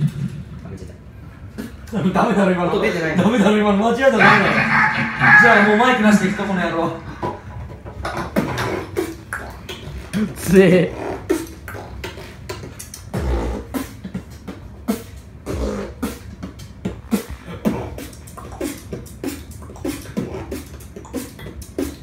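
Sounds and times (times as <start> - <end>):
person beatboxing: 8.8 - 22.0.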